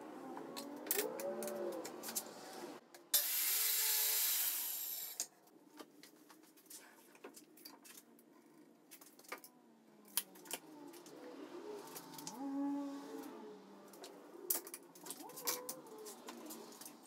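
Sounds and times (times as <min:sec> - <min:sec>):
circular saw cutting: 0:03.1 - 0:05.2.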